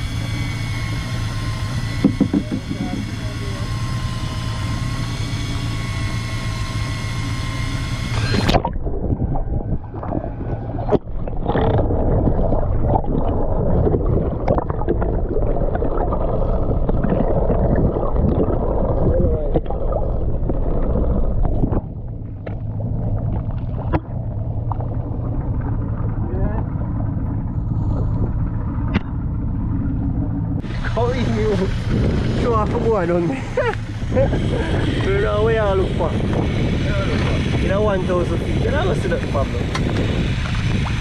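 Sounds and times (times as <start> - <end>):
motor hum with whine: 0.0 - 41.0
muffled underwater rushing: 0.0 - 41.0
knocks: 2.0 - 3.0.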